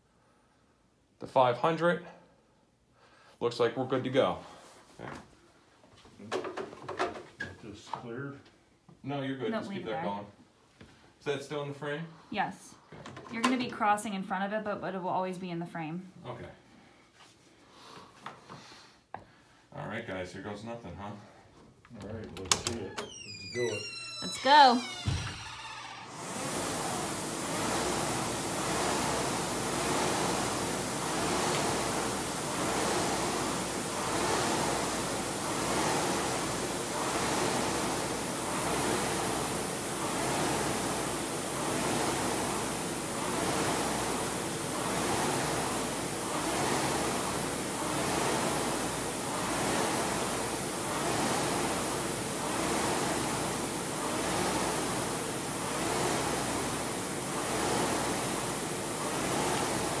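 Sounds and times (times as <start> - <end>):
rowing machine flywheel rushing: 22.4 - 60.0.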